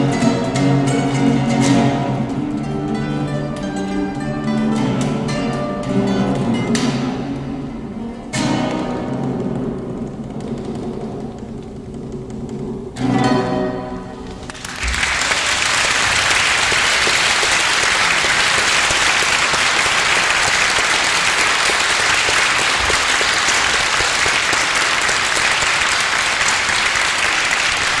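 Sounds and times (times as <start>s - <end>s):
audience applauding: 14.3s - 28.0s.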